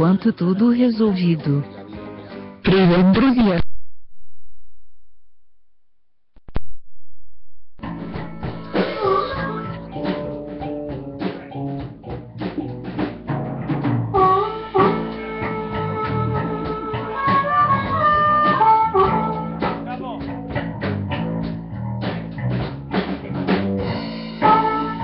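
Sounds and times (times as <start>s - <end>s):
blues-rock band playing: 7.8s - 25.0s.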